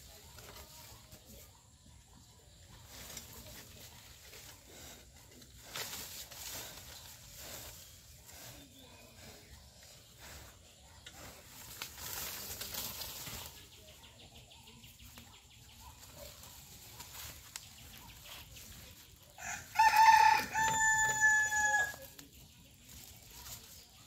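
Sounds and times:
dry leaves rustling: 11.5s - 14.1s, 15.2s - 24.0s
rooster crowing: 19.4s - 22.0s.

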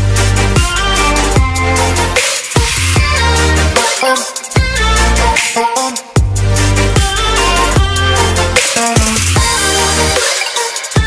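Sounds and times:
deep bass notes: 0.0s - 2.2s, 2.8s - 3.8s, 4.6s - 5.4s, 6.2s - 10.2s
electronic music: 0.0s - 11.0s.

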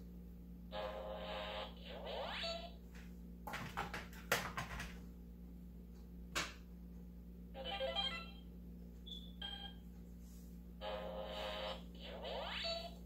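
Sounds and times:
electronic toy beeping: 7.6s - 8.4s, 10.8s - 13.0s.

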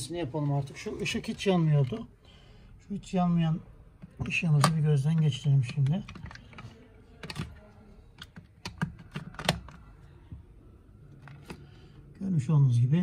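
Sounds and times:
plastic clicks and knocks: 4.0s - 7.6s, 8.2s - 9.9s.

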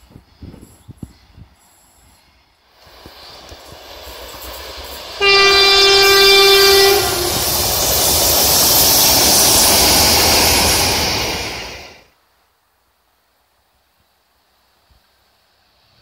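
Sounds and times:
train wheels running past: 0.0s - 12.1s
locomotive horn blast: 5.2s - 7.6s.

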